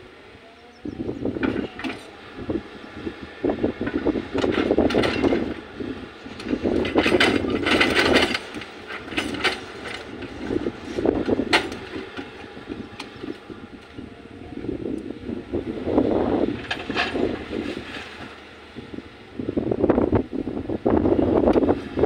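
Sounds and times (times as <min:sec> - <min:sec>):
excavator engine under load: 0:00.0 - 0:22.0
bucket clanking and scraping: 0:06.4 - 0:13.2.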